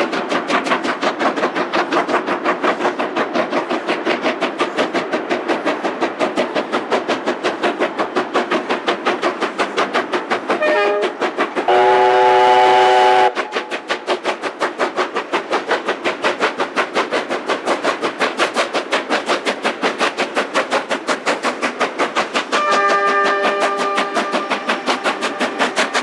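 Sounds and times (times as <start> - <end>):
steam locomotive exhaust beats: 0.0 - 26.0
steam whistle: 10.6 - 11.1, 11.7 - 13.4, 22.6 - 24.7.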